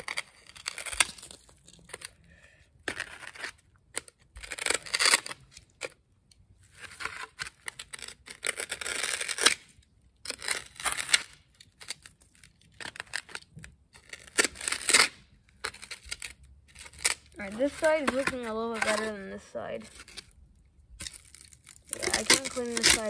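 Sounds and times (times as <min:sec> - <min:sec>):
foam board scraping: 0:16.7 - 0:20.3, 0:21.9 - 0:23.0.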